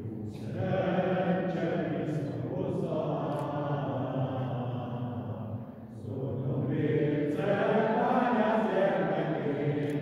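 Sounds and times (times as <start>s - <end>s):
group singing a slow hymn: 0.0s - 10.0s.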